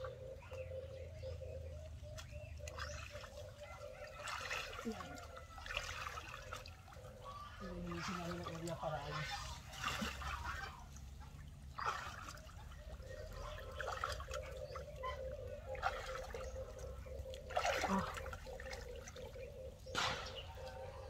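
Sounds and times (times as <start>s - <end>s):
water splashing and sloshing: 0.0s - 21.0s.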